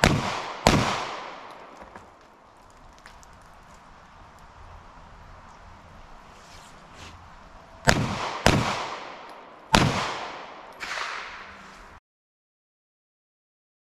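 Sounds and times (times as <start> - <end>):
loud pistol shots with echo: 0.0 - 1.8, 7.8 - 11.6
faint gunshot report: 7.9 - 11.6.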